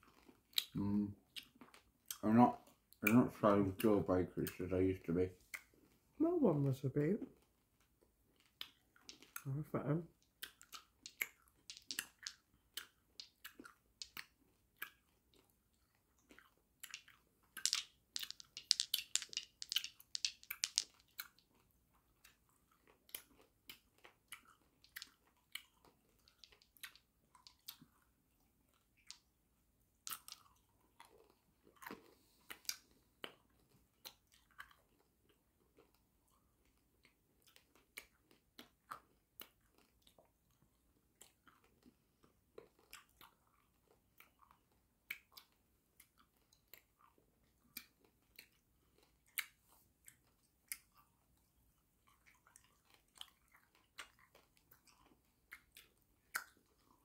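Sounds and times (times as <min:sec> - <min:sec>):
hard candy clacking against teeth: 0:00.1 - 0:02.2, 0:07.8 - 0:09.5, 0:10.1 - 0:28.1, 0:30.0 - 0:36.0, 0:52.0 - 0:57.0.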